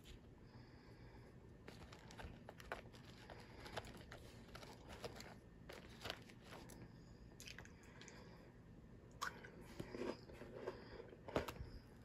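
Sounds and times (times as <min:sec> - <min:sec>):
person chewing wafer: 0:07.4 - 0:08.2.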